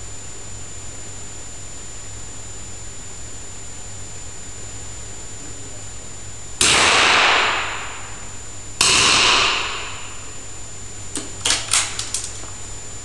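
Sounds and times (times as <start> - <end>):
rifle shots ringing indoors: 6.6 - 8.2, 8.8 - 10.2, 11.2 - 12.4.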